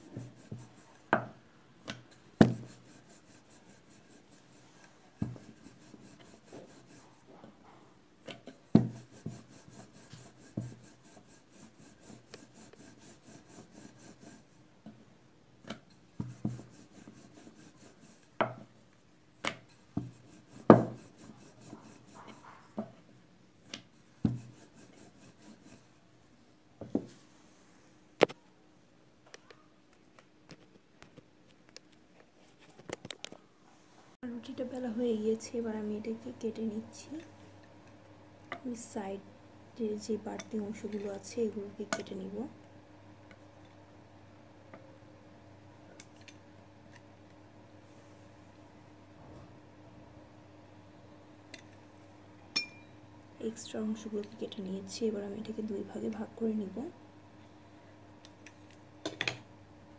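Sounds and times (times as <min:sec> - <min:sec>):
rolling pin rubbing on dough: 0:00.0 - 0:01.0, 0:02.4 - 0:07.4, 0:08.7 - 0:14.6, 0:16.2 - 0:18.6, 0:19.6 - 0:22.8, 0:23.7 - 0:26.0
rolling pin knocking on board: 0:02.4 - 0:02.7, 0:20.7 - 0:21.0.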